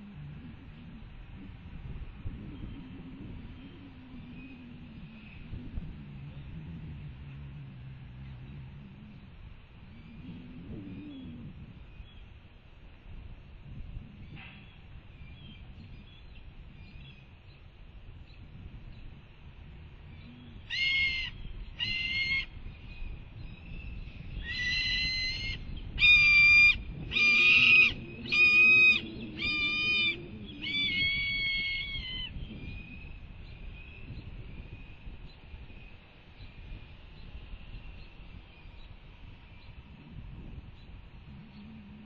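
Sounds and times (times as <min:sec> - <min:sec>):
hawk begging cries: 0:20.7 - 0:22.5, 0:24.4 - 0:32.3.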